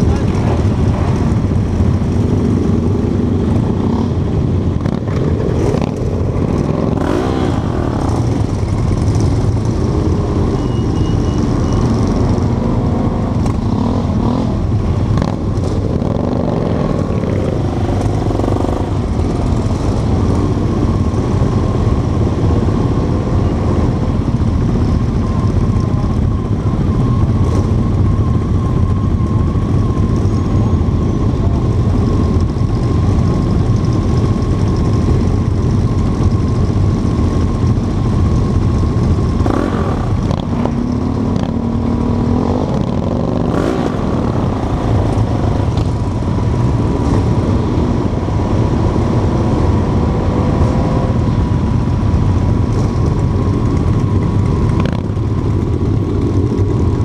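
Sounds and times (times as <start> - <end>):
motorcycle engine revving: 0.0 - 23.9, 37.0 - 51.2
motorcycle engines running: 0.0 - 57.0.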